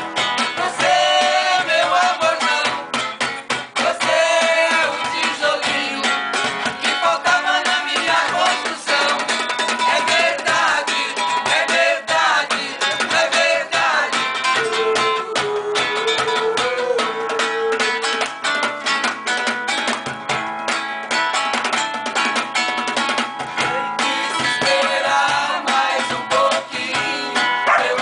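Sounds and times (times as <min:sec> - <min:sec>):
group of voices singing: 0:00.0 - 0:18.2, 0:23.6 - 0:28.0
strummed acoustic guitar: 0:00.0 - 0:28.0.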